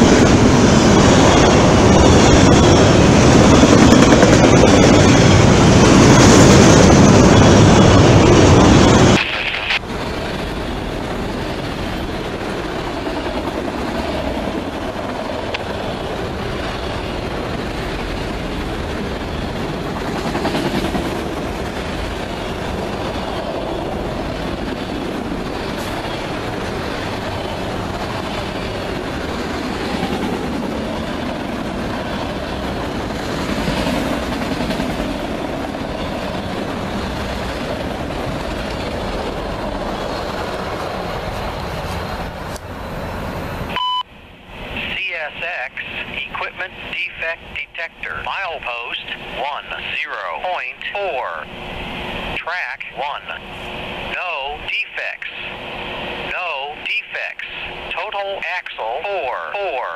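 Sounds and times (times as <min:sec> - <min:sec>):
train wheels rolling on rails: 0:00.0 - 0:43.7.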